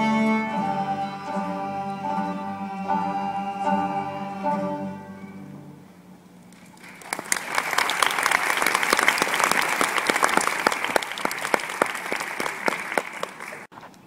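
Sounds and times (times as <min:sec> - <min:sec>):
audience applause: 0:06.6 - 0:13.7.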